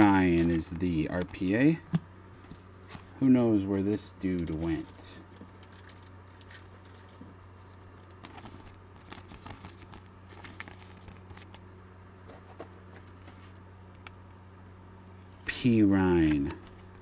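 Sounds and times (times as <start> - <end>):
card clicks and rustles: 0.0 - 3.1, 4.3 - 11.6, 16.1 - 17.0
steady low hum: 0.0 - 17.0.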